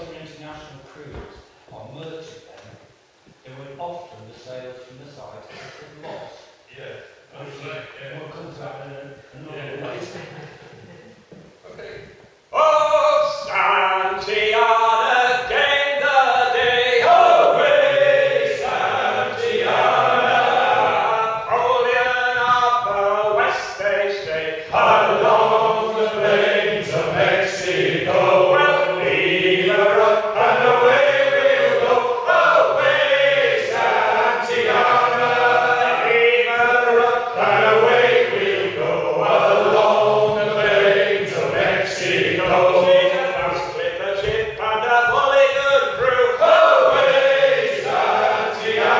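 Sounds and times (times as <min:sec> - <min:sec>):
men singing a sea shanty: 0:12.5 - 0:48.9.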